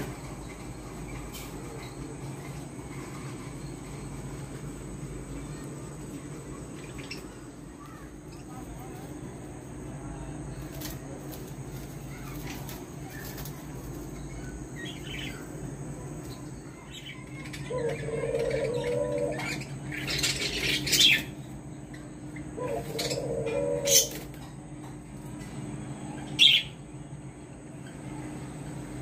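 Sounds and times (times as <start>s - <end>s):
steady background hum: 0.0s - 29.0s
wing flapping: 10.5s - 14.2s
doves cooing: 17.2s - 24.8s.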